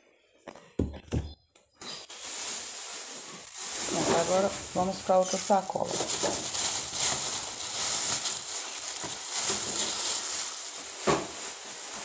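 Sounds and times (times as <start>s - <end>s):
plastic bag rustling: 1.8s - 12.0s.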